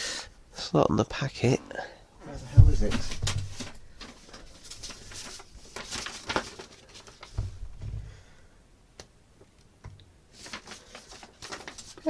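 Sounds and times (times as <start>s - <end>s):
dull thumps: 2.4s - 4.0s, 7.3s - 8.3s
mailing packet rustling: 2.8s - 8.3s, 10.3s - 12.0s.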